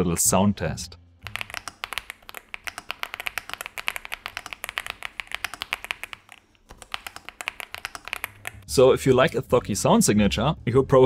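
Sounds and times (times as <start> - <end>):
mechanical keyboard typing: 1.2 - 8.6.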